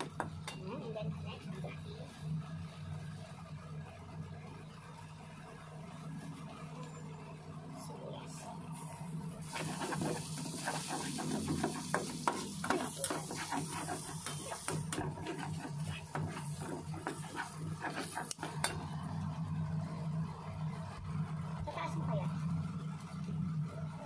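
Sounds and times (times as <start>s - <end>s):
onion and garlic sizzling in a pan: 9.4s - 18.8s
spatula scraping a pan: 9.4s - 18.8s.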